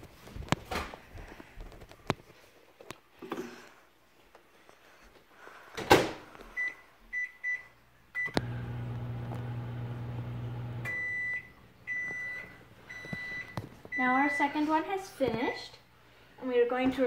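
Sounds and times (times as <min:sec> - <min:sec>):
microwave oven humming: 0:08.2 - 0:13.1
long end-of-cycle beeps: 0:10.8 - 0:14.1
keypad beeps: 0:10.9 - 0:13.6.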